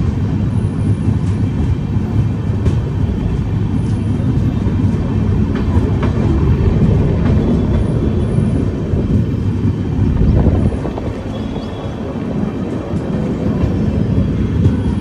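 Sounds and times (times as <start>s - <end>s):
train wheels rumbling on rails: 0.0s - 15.0s
rushing air: 4.5s - 15.0s.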